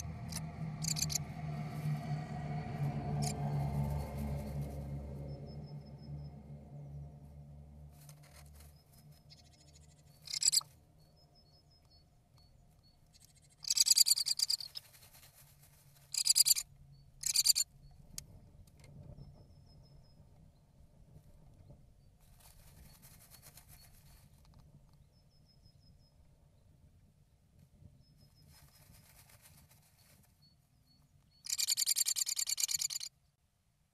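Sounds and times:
bird scratching in dry moss: 0.2s - 2.0s, 7.9s - 10.7s, 13.6s - 16.6s, 22.2s - 24.6s, 28.4s - 30.4s.

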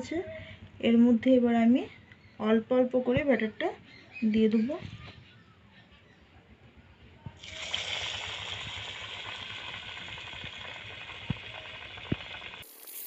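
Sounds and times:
oil sizzling and crackling: 7.4s - 13.0s.

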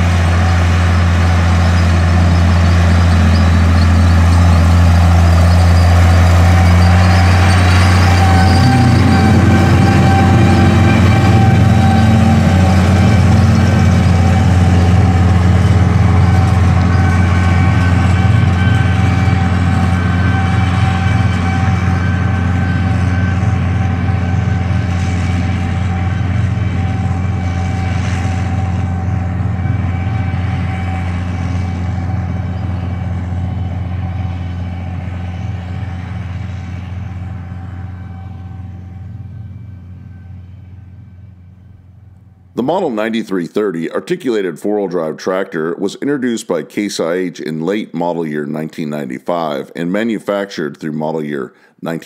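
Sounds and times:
steady whine: 0.0s - 44.6s
tractor diesel engine running: 0.0s - 45.2s.

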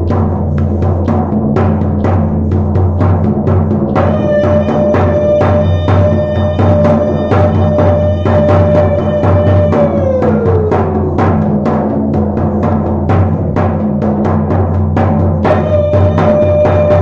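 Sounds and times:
deep drum beats: 0.0s - 17.0s.

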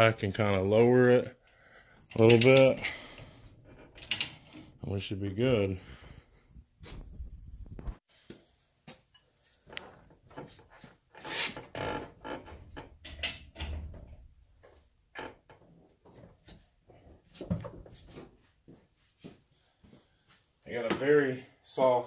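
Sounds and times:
metallic clicks and clunks: 2.1s - 4.7s, 12.4s - 14.3s.

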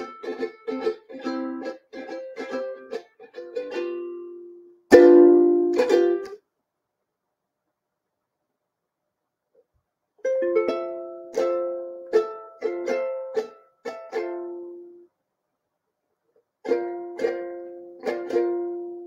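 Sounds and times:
ukulele chords strummed: 0.0s - 6.4s, 10.2s - 15.0s, 16.6s - 19.0s.

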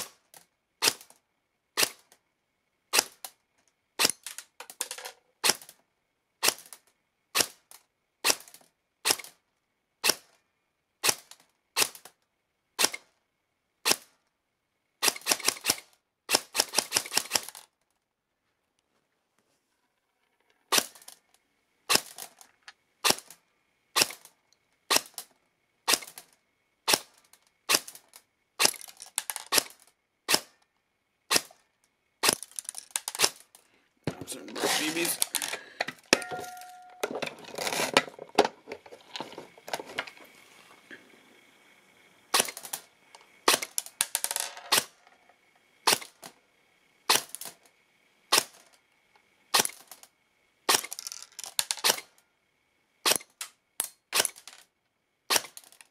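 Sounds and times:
airsoft gun firing shots: 8.2s - 9.3s, 12.8s - 13.0s, 15.0s - 17.6s, 23.0s - 23.4s, 25.9s - 26.2s, 28.6s - 28.9s, 31.3s - 31.6s, 32.2s - 33.4s, 42.3s - 42.8s, 43.5s - 43.8s, 44.7s - 45.0s, 45.9s - 46.2s, 49.5s - 49.8s, 55.3s - 55.6s.

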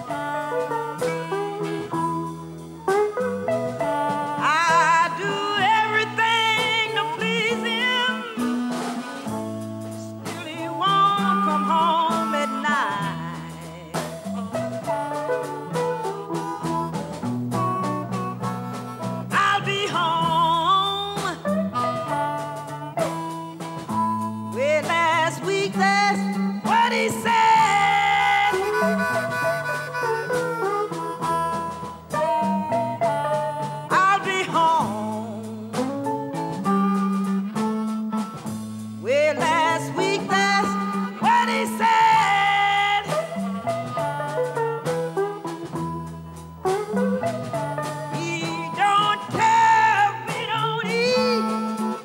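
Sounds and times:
blues band playing live: 0.0s - 52.0s
harmonica with vibrato: 0.0s - 52.0s.

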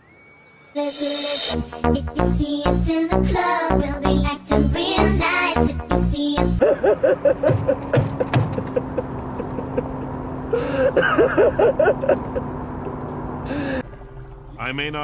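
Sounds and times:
man laughing wildly: 6.6s - 12.9s.

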